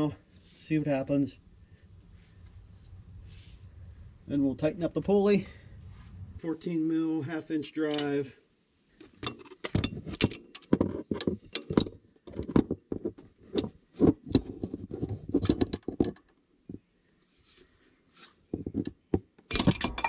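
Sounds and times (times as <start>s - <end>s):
metallic clatter: 19.5s - 20.0s.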